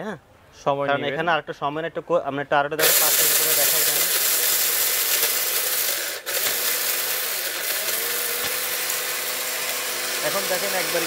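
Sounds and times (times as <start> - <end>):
mixer grinder grinding: 2.8 - 11.0.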